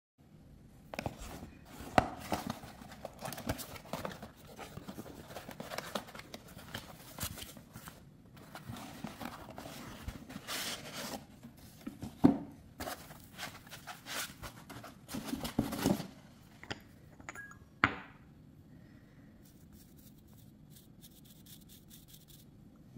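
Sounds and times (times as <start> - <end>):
rustling and scraping: 1.0 - 16.2.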